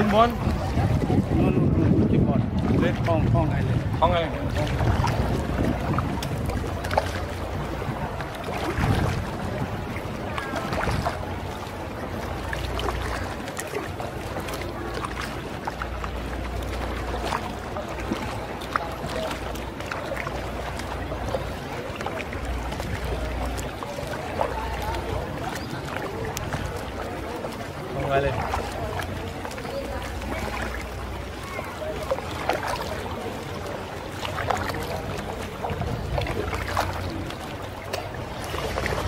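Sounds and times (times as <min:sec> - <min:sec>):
wind rumble on microphone: 0:00.0 - 0:19.7, 0:32.8 - 0:39.0
paddle strokes: 0:00.0 - 0:39.0
water splashing and lapping: 0:00.0 - 0:39.0.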